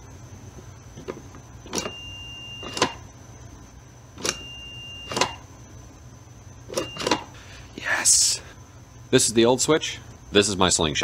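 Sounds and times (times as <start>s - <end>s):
multimeter beep: 1.6s - 3.1s, 4.2s - 5.5s, 6.7s - 7.3s.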